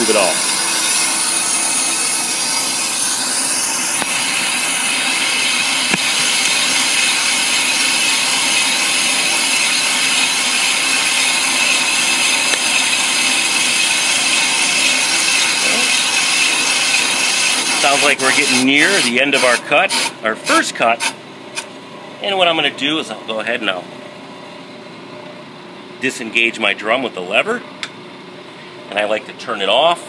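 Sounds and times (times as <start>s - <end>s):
brake lathe scraping and ringing: 0.0s - 19.1s.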